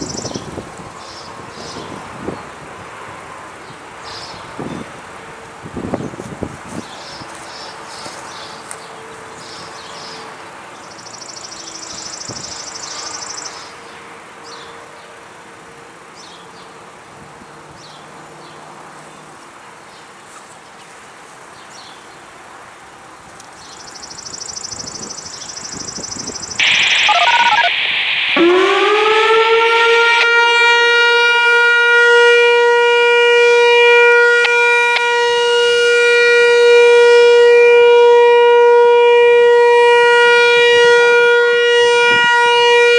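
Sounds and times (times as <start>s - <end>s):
faint outdoor ambience: 0.0s - 42.9s
electronic warning siren: 24.6s - 42.9s
burst of hiss: 26.6s - 29.4s.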